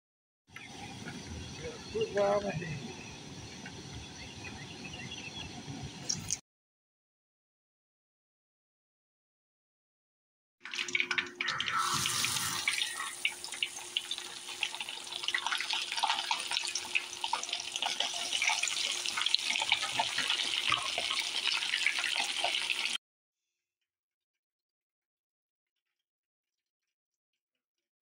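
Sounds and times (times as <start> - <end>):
fish sizzling in hot oil: 10.7 - 23.0.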